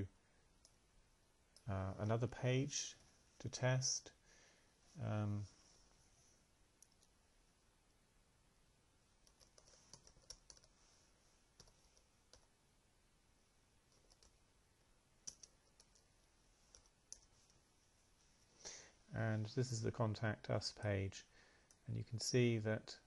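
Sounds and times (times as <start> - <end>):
keyboard typing: 9.2 - 10.8, 11.6 - 12.5, 13.9 - 14.4, 15.2 - 16.1, 16.7 - 17.3.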